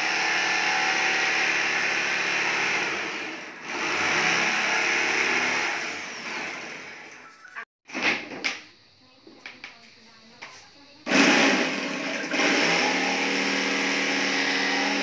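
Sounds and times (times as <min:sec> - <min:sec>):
electric jigsaw cutting wood: 0:00.0 - 0:07.1, 0:11.1 - 0:15.0.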